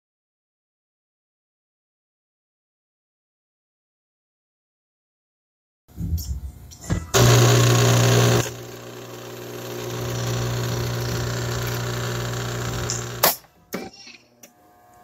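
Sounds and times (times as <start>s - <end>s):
coffee machine humming: 7.1s - 13.4s.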